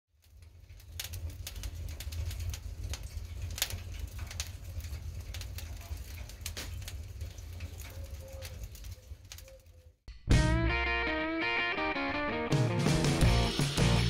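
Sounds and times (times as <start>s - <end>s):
low rumble of flames: 0.1s - 10.0s
wood fire crackling and popping: 0.1s - 10.0s.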